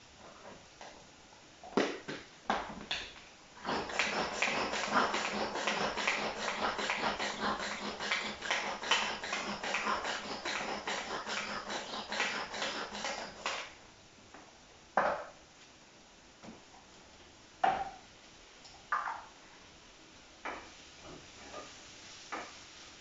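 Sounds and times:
knife scraping a vegetable: 3.6s - 13.7s.

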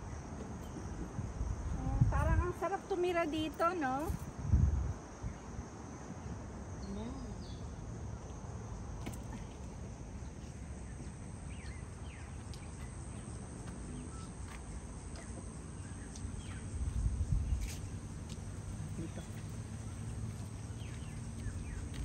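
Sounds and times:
insect drone: 0.0s - 22.0s
birds chirping: 10.2s - 17.9s, 18.6s - 22.0s.

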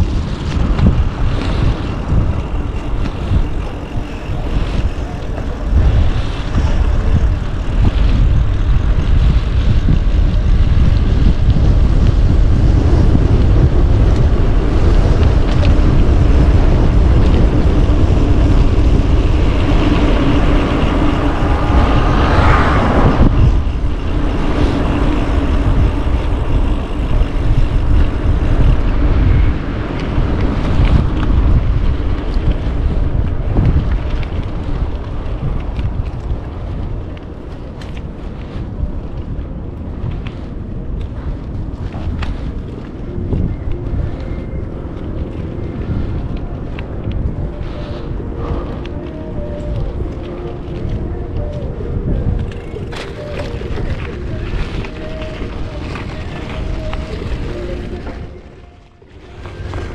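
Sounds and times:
wind rumble on microphone: 0.0s - 59.9s
steady pitched hum: 10.7s - 34.0s, 42.4s - 59.9s.

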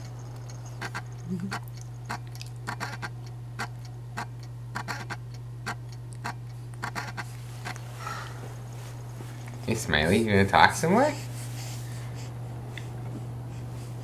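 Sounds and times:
steady low hum: 0.0s - 14.0s
short irregular clicks: 0.4s - 7.8s.

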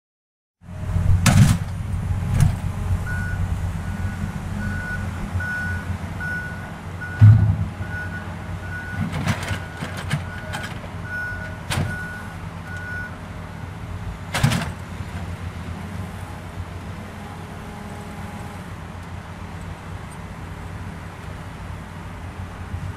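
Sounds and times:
engine rumble: 0.6s - 22.9s
reversing alarm beeping: 3.1s - 9.0s, 9.6s - 13.2s
loud thump: 7.2s - 7.8s.

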